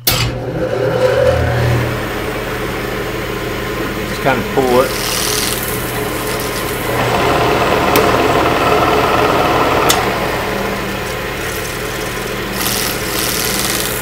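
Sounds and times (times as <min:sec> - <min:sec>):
lathe gear train running: 0:00.0 - 0:14.0
lathe motor humming: 0:00.4 - 0:14.0.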